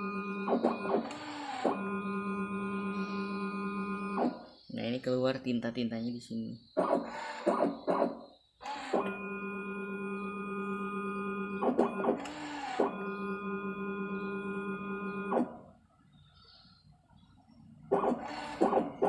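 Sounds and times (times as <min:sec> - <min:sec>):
pump motor whining: 0:00.0 - 0:04.5, 0:06.8 - 0:15.6, 0:17.9 - 0:19.0.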